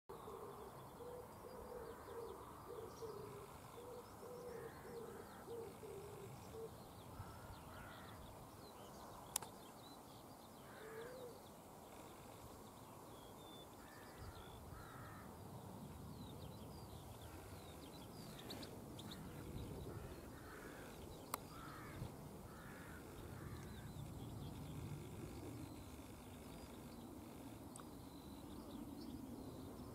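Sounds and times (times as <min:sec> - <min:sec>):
bird low hooting call: 0:00.1 - 0:08.2, 0:10.6 - 0:12.4, 0:16.9 - 0:29.1
sharp clicks: 0:09.3 - 0:09.6.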